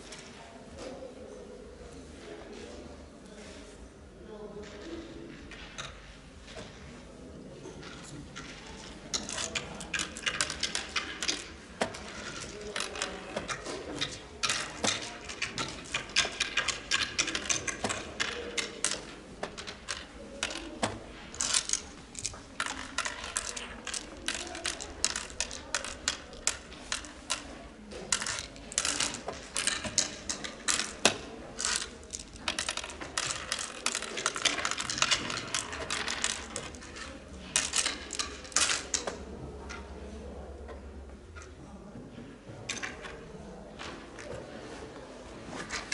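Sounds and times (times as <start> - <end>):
counters clicking on wooden board: 7.6 - 39.9.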